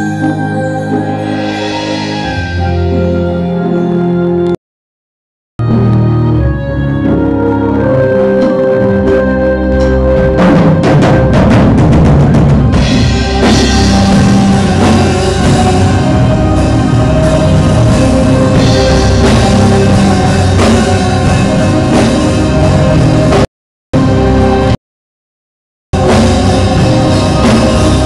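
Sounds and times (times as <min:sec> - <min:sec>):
live rock band playing: 0:00.1 - 0:04.6, 0:05.6 - 0:23.4, 0:26.0 - 0:28.0
drums hitting densely: 0:10.3 - 0:23.5, 0:26.0 - 0:28.0.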